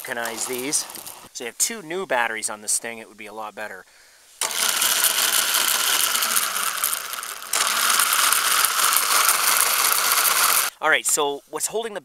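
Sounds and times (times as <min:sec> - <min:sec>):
electric motor clattering ticks: 0:00.0 - 0:01.3, 0:04.4 - 0:10.7.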